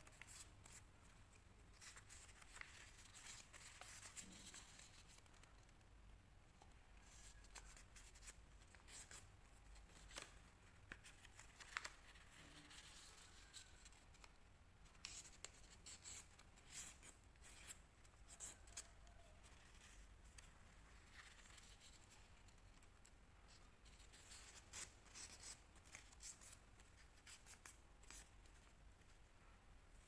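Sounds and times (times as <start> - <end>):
paper crinkling and rustling: 9.8 - 14.3.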